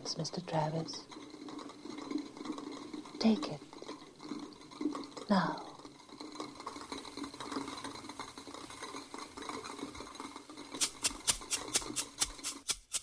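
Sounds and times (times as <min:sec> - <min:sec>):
sharp percussion ticks: 0:10.8 - 0:13.0.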